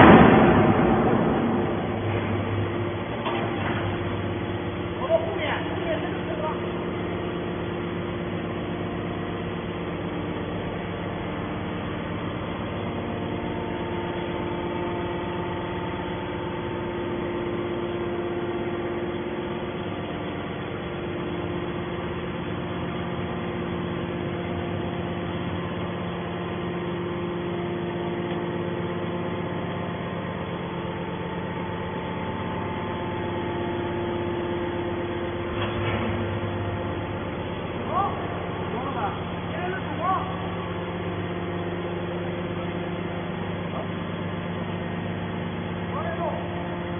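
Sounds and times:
hydraulic unit mechanical hum: 0:00.0 - 0:46.9.

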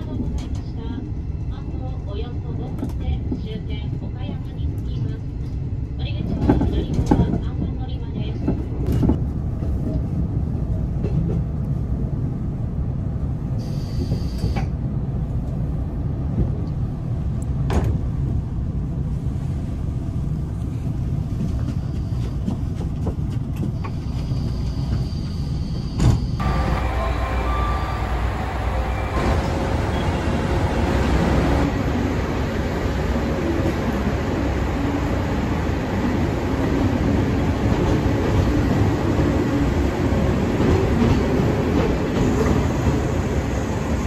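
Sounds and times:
train at platform: 0:00.0 - 0:44.0
train rumbling: 0:00.0 - 0:44.0.

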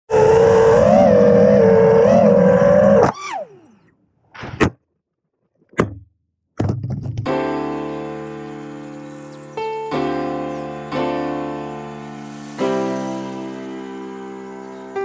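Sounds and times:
drone throttle blips: 0:00.1 - 0:03.9
drone motors whining: 0:00.1 - 0:04.0, 0:11.5 - 0:15.0.

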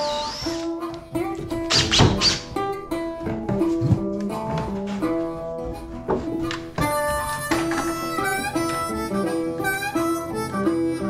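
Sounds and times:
acoustic guitar: 0:00.0 - 0:11.0
bluesy harmonica melody: 0:00.0 - 0:11.0.

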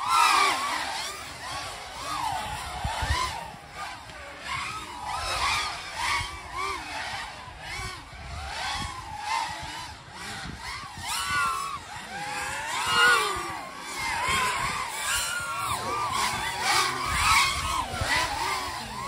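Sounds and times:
drone motors whining: 0:00.0 - 0:19.0.

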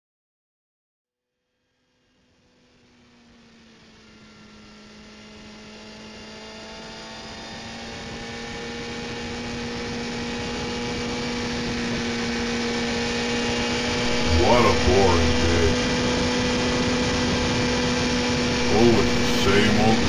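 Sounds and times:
vehicle engine droning: 0:09.2 - 0:16.7, 0:17.9 - 0:20.0
steady tones: 0:13.8 - 0:16.0, 0:18.5 - 0:20.0.

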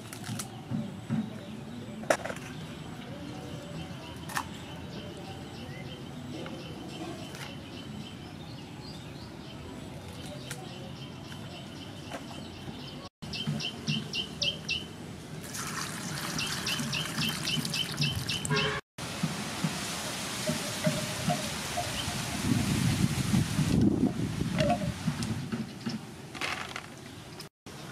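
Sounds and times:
birds chirping: 0:00.4 - 0:15.0, 0:15.9 - 0:18.8
water trickling and splashing: 0:15.4 - 0:25.4.

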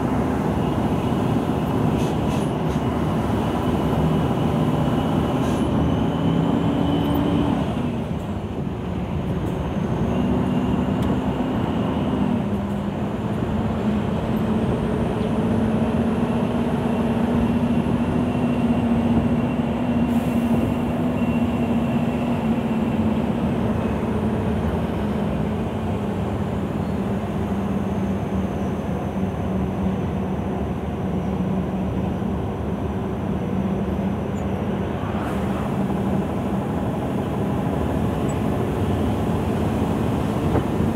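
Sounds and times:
diesel truck engine running: 0:00.0 - 0:40.9
road noise: 0:00.0 - 0:40.9.

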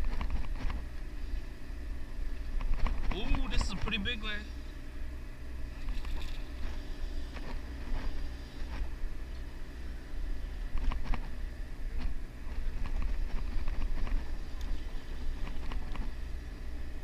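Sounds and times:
low rumble on boat deck: 0:00.0 - 0:17.0.

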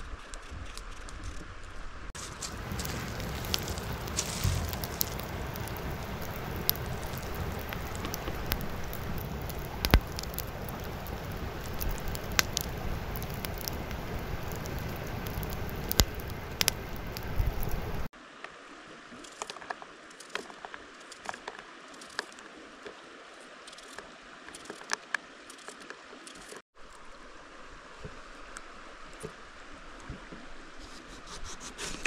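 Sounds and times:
campfire crackling and popping: 0:02.2 - 0:18.1.

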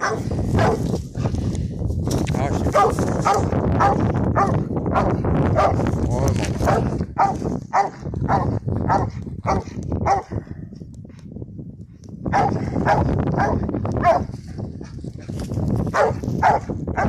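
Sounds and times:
dog barking rapidly: 0:00.0 - 0:01.0, 0:02.7 - 0:05.9, 0:06.6 - 0:10.3, 0:12.3 - 0:14.3, 0:15.9 - 0:17.0.

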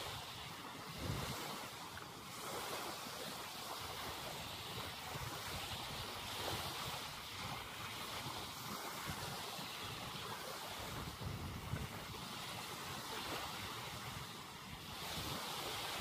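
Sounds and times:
wind buffeting microphone: 0:00.0 - 0:03.0, 0:03.8 - 0:16.0
waves washing on sandy shore: 0:00.0 - 0:16.0.

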